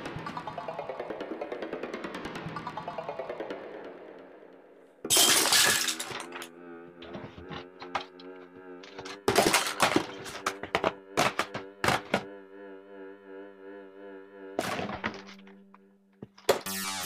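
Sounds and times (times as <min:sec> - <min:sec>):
low music tone: 0:00.0 - 0:17.0
glass shattering: 0:05.1 - 0:06.5
objects crashing off a table: 0:05.1 - 0:08.1, 0:08.9 - 0:12.3, 0:14.6 - 0:15.4.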